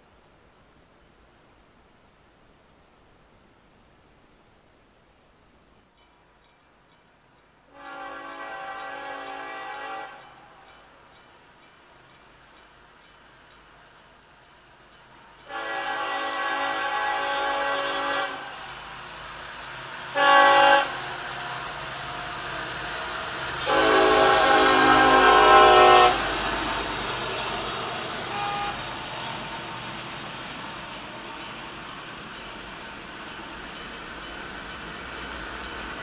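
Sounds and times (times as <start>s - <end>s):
train rumble: 5.4s - 36.0s
locomotive air horn blasts: 7.7s - 10.6s, 15.4s - 18.7s, 20.1s - 21.1s, 23.6s - 26.3s, 28.2s - 28.9s.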